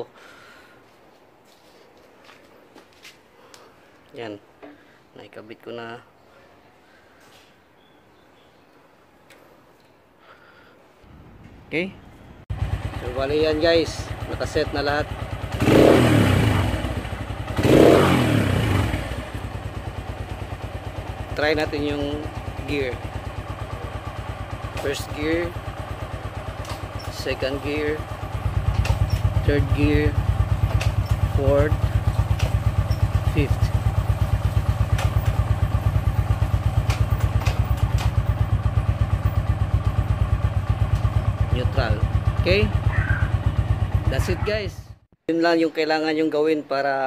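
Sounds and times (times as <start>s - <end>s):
motorcycle engine idling and revving: 12.5s - 45.1s.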